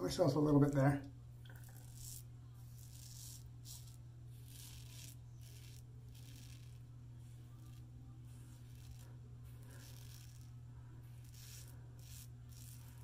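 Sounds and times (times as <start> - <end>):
razor scraping stubble: 0.0 - 13.0
low hum: 3.4 - 13.0.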